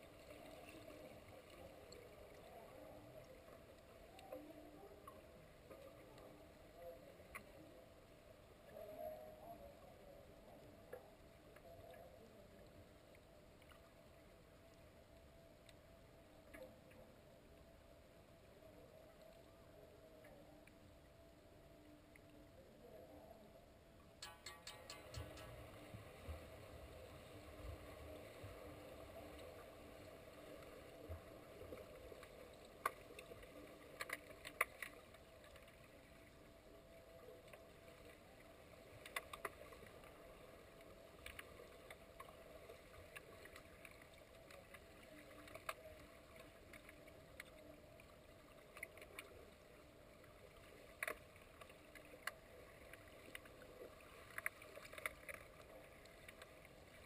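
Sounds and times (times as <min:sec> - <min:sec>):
underwater hiss and hum: 0:00.0 - 0:57.0
sharp clicks and knocks: 0:24.2 - 0:25.8.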